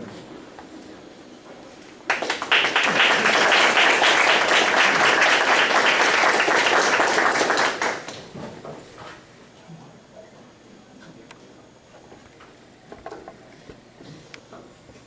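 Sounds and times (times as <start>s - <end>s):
audience applauding: 2.1s - 8.3s.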